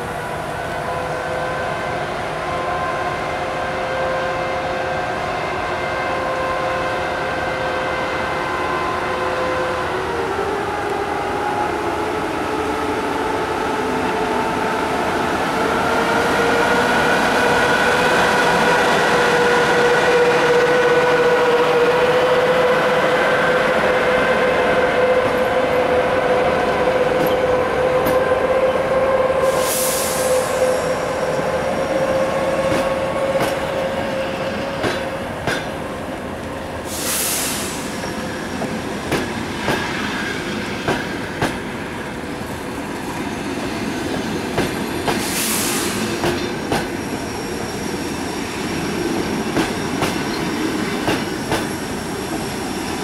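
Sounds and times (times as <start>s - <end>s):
diesel locomotive engine humming: 0.0s - 37.0s.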